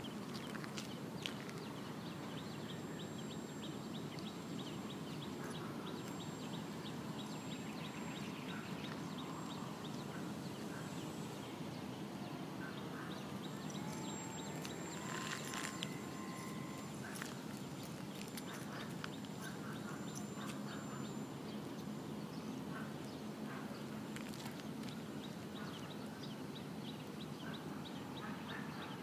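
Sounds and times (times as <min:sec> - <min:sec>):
outdoor background noise: 0:00.0 - 0:29.0
model airplane motor whine: 0:13.5 - 0:17.8.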